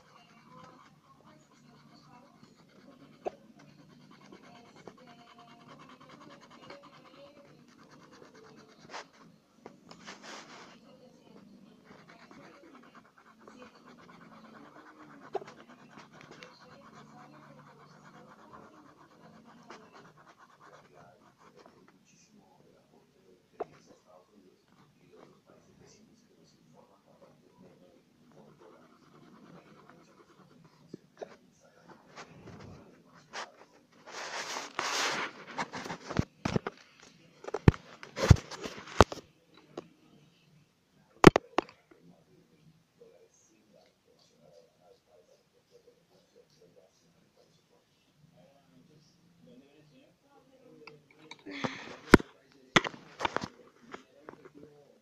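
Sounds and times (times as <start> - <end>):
pencil scratching on paper: 0.0 - 22.0, 27.6 - 36.8.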